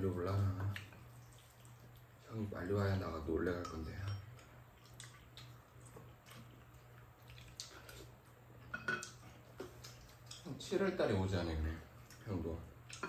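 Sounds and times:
low steady hum: 0.0s - 13.0s
chewing mouth sounds: 0.7s - 2.2s, 4.4s - 8.4s
spoons clicking against bowls: 3.6s - 4.5s.

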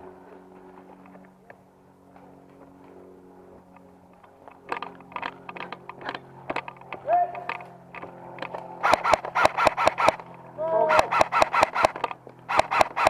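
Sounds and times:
camera mount rattling: 4.5s - 10.4s, 11.0s - 13.0s.

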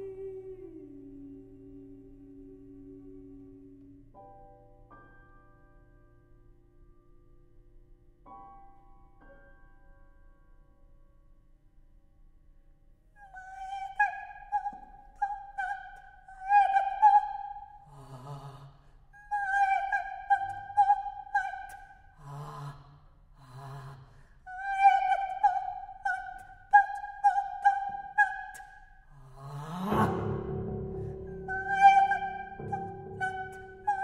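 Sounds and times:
woman singing unaccompanied: 0.0s - 4.2s, 13.2s - 22.8s, 23.5s - 34.0s
low breathy sounds: 17.8s - 19.2s, 22.0s - 24.5s.

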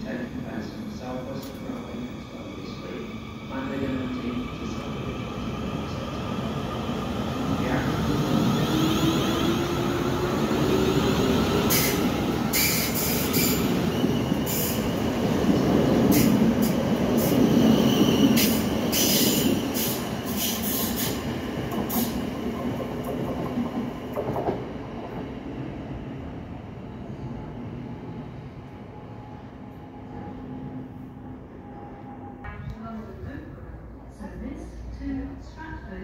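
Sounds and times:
train wheels rumbling on rails: 5.8s - 25.3s.

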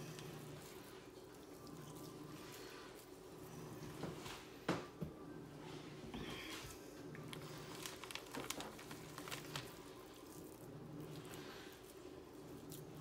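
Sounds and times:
hands squishing raw ground beef: 0.0s - 4.5s, 7.2s - 13.0s.

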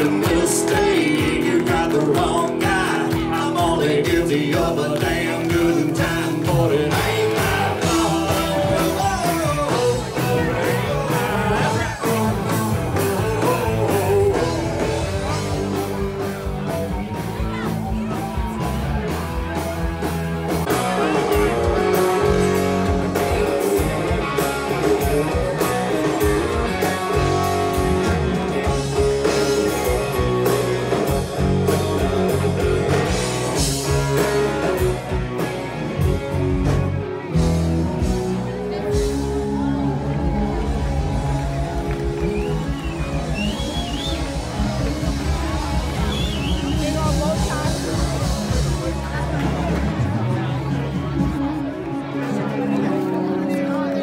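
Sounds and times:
person singing: 0.0s - 15.8s
drum kit beat: 0.0s - 51.7s
electric guitars: 0.0s - 54.0s.

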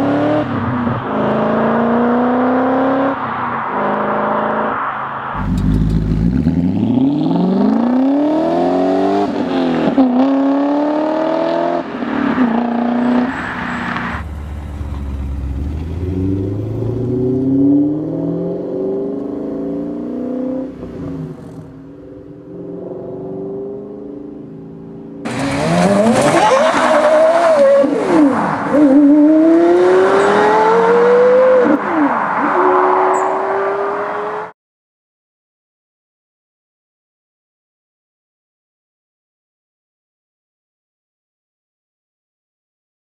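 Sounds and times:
car engine accelerating hard: 5.4s - 11.8s, 14.0s - 21.7s, 25.3s - 31.8s.

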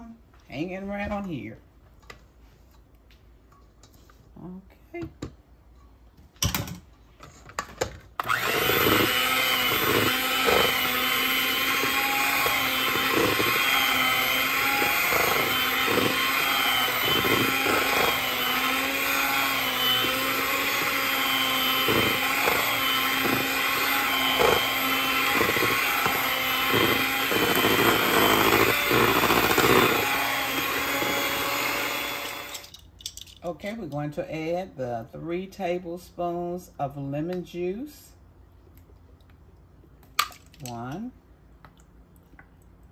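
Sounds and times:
electric hand mixer whirring: 8.2s - 32.7s.

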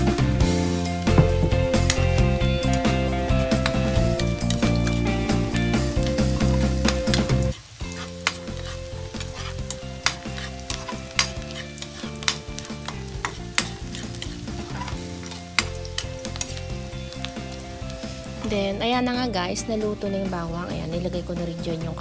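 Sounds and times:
onion and garlic sizzling in oil: 0.0s - 22.0s
metal ladle scraping a wok: 6.4s - 16.6s.

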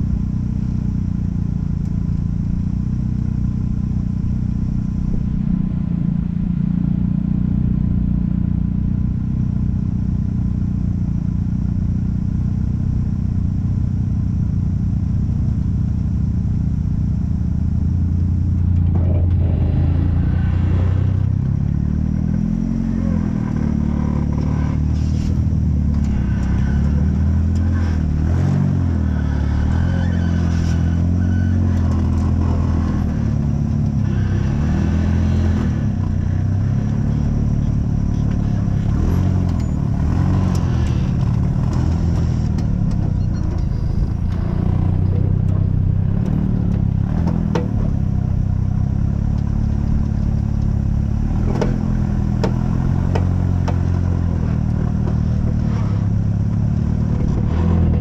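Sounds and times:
off-road vehicle engine: 0.0s - 58.0s.

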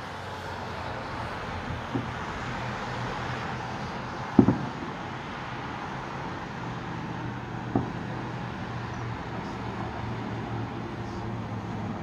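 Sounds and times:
city traffic hum: 0.0s - 12.0s
distant fireworks booming: 1.6s - 2.7s, 4.2s - 10.2s.

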